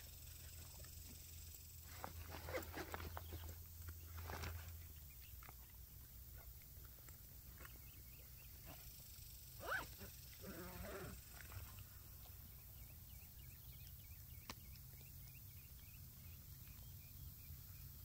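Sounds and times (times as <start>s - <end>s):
hands rummaging in a backpack: 1.9s - 3.5s.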